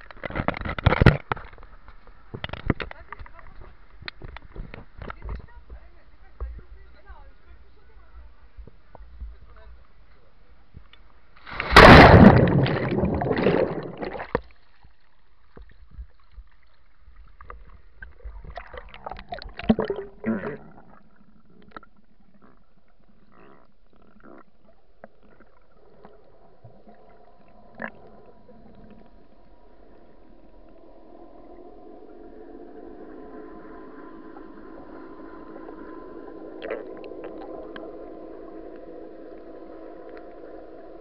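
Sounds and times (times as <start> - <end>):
small underwater clicks: 0.0 - 5.8
faint steady hum: 0.0 - 41.0
splash into water: 11.4 - 14.5
underwater bubbling: 11.4 - 41.0.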